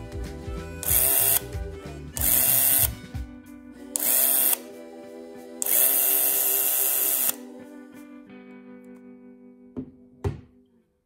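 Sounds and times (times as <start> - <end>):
background music: 0.0 - 10.6
camera motor and shutter whirring: 0.8 - 1.5, 2.2 - 2.9, 4.0 - 4.6, 5.6 - 7.4.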